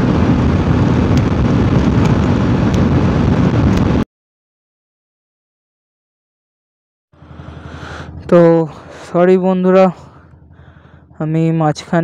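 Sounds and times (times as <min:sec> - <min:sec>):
motorcycle engine: 0:00.0 - 0:04.0
road noise: 0:00.0 - 0:04.0, 0:07.2 - 0:12.0
wind buffeting microphone: 0:00.0 - 0:04.0.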